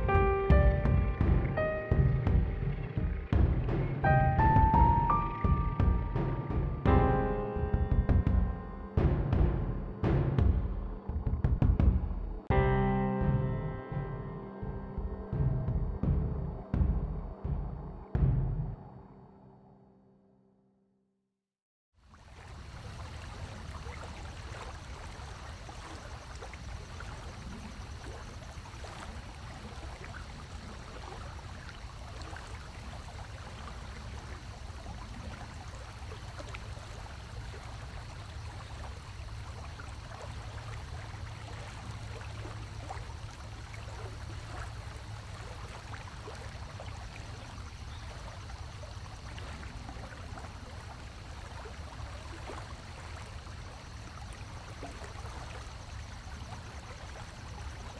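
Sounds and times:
water trickling: 0.0s - 7.0s, 22.0s - 57.9s
low rumble: 0.0s - 19.5s
small splashes: 22.0s - 57.9s.

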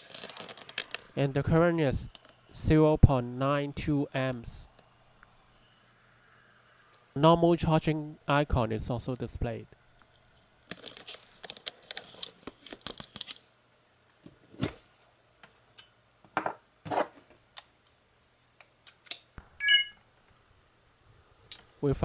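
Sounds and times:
cables rustling and scraping: 0.0s - 1.2s, 10.0s - 13.5s
bright electronic chime: 19.6s - 20.0s.

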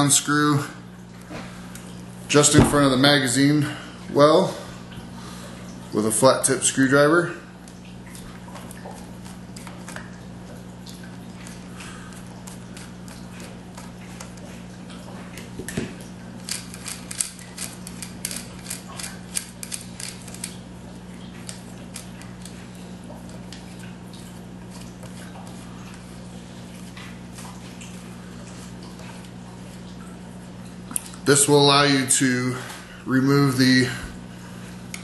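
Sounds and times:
louder knock: 2.6s - 3.0s.

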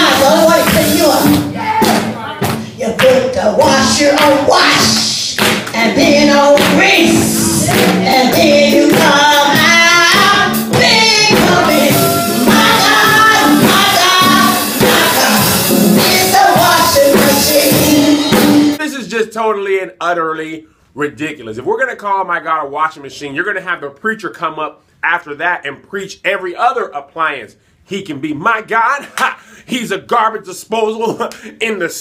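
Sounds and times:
instrumental backing: 0.0s - 18.8s
woman singing: 0.0s - 18.8s.

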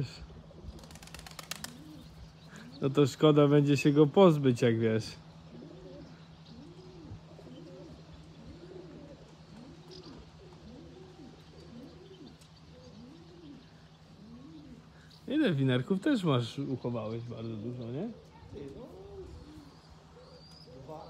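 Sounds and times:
pigeons cooing: 0.0s - 21.0s.

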